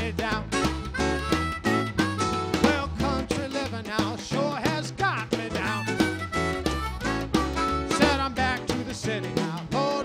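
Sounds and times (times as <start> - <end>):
acoustic guitar: 0.0 - 10.0
bass walking line: 0.0 - 10.0
blues harmonica solo: 0.4 - 3.2, 5.5 - 8.8
snare drum: 0.6 - 10.0.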